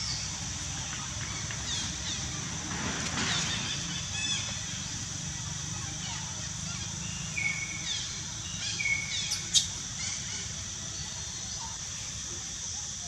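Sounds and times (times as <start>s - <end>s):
steady high hiss: 0.0s - 13.0s
birds chirping: 3.2s - 13.0s.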